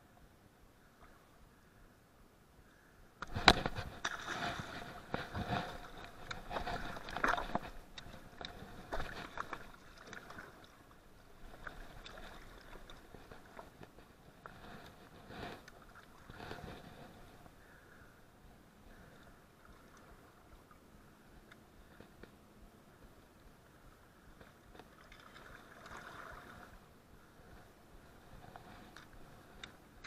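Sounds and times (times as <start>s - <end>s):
rustling: 3.3s - 10.6s.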